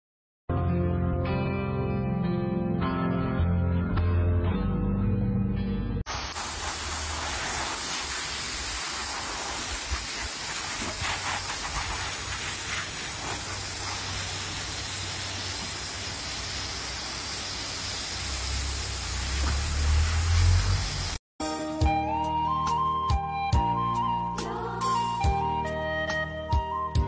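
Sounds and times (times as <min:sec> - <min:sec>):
garden hose spraying water: 0:06.1 - 0:21.2.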